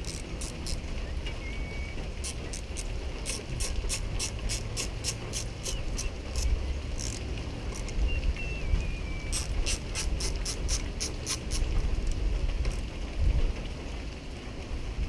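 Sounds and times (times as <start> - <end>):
socket ratchet clicking: 0.0 - 0.8, 2.2 - 8.0, 9.3 - 11.7.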